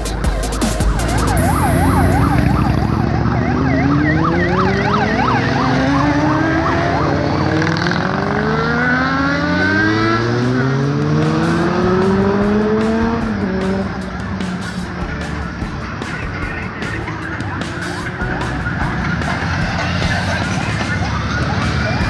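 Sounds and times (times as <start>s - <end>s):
siren yelping: 0.0s - 10.4s, 16.2s - 22.0s
motorcycles accelerating past: 1.3s - 15.6s.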